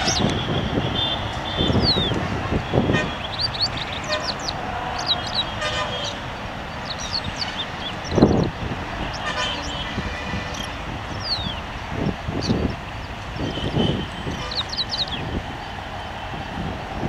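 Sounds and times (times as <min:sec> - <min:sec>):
small birds chirping: 0:00.0 - 0:15.8
low traffic rumble: 0:00.0 - 0:17.0.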